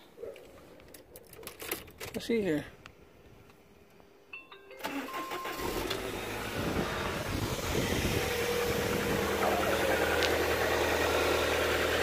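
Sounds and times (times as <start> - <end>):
car engine cranking: 4.8 - 12.0
car engine idling: 4.9 - 12.0.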